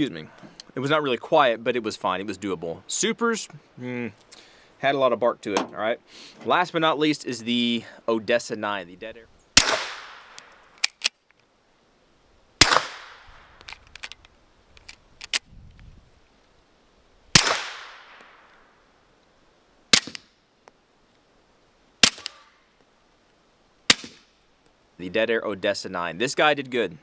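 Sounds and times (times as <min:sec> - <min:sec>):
suppressed pistol shots: 0:09.6 - 0:11.1, 0:12.6 - 0:13.5, 0:17.3 - 0:18.4, 0:19.9 - 0:20.3, 0:22.0 - 0:22.5, 0:23.9 - 0:24.3.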